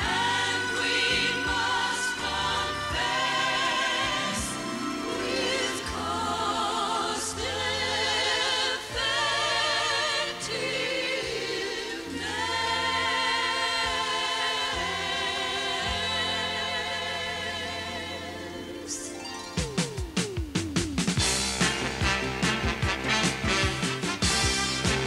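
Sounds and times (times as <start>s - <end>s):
chorus singing with vibrato: 0.0s - 20.1s
low accompaniment: 18.4s - 25.0s.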